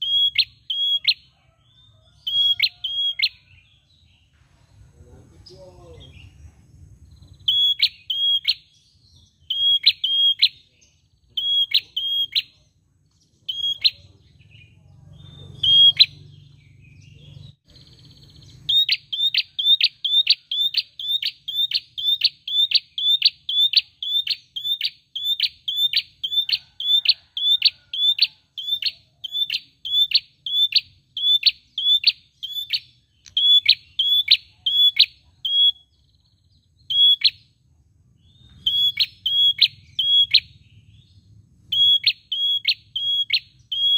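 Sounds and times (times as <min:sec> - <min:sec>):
songbird calling sharp high notes: 0:00.0 - 0:01.3, 0:02.2 - 0:03.6, 0:07.2 - 0:12.7, 0:13.4 - 0:14.2, 0:15.2 - 0:16.6, 0:17.8 - 0:37.6, 0:38.2 - 0:41.1, 0:41.7 - 0:43.9.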